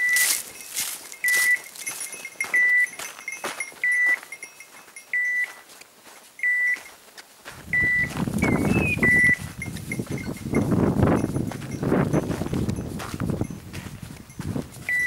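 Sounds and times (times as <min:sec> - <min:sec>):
rough rustling: 0:00.0 - 0:03.7
beeper collar short beeps: 0:00.0 - 0:05.6, 0:06.4 - 0:06.9, 0:07.7 - 0:11.3.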